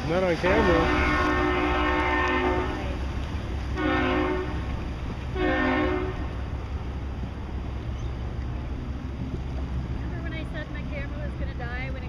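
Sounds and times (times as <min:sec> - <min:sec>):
boat horn blasts: 0:00.4 - 0:06.5.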